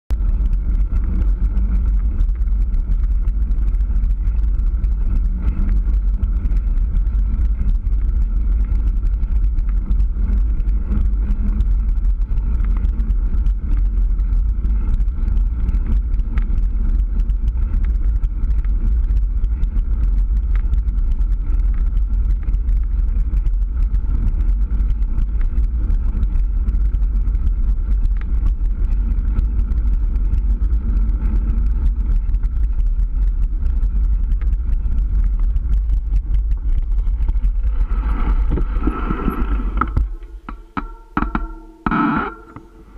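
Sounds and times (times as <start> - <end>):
wind rumble on microphone: 0.0 - 42.9
tyre rolling on asphalt: 17.2 - 40.5.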